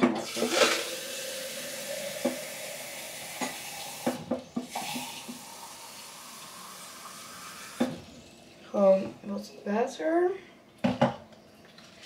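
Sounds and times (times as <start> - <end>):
tap water running into cup: 0.0 - 8.6.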